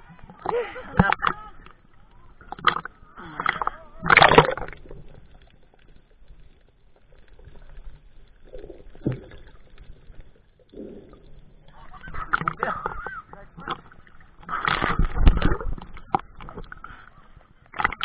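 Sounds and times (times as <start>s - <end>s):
muffled underwater sound: 0.0s - 18.0s
seawater sloshing and splashing: 2.5s - 5.3s
loud splash: 3.4s - 4.8s.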